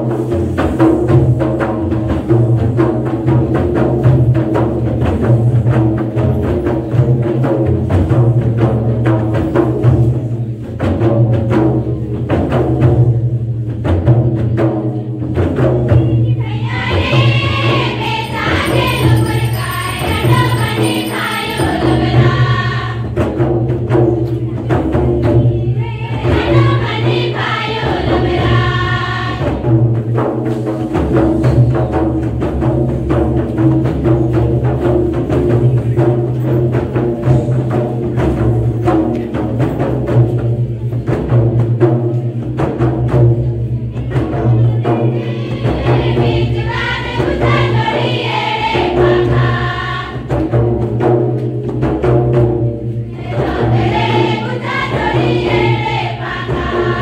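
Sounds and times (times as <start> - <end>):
fast hand-drumming on barrel drum: 0.0 - 57.0
group singing together: 16.3 - 24.0, 24.8 - 30.3, 44.8 - 51.1, 53.1 - 57.0.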